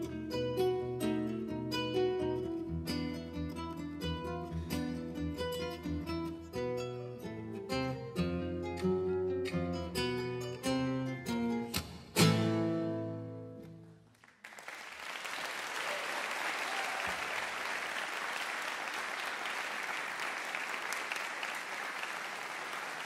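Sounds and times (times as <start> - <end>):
audience applause: 14.1 - 23.0.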